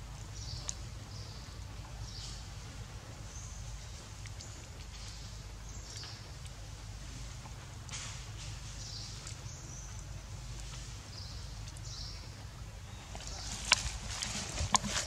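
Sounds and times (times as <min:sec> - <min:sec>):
low outdoor rumble: 0:00.0 - 0:15.0
dry leaves rustling and snapping: 0:07.5 - 0:10.0, 0:13.1 - 0:15.0.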